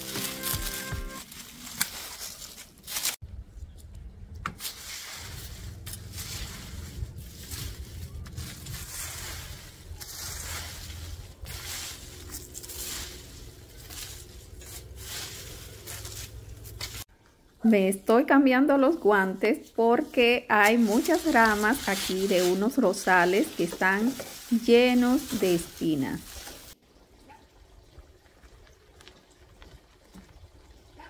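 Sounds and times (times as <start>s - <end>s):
dry leaves rustling and crunching: 0.0s - 3.2s, 4.5s - 17.1s, 19.0s - 26.8s.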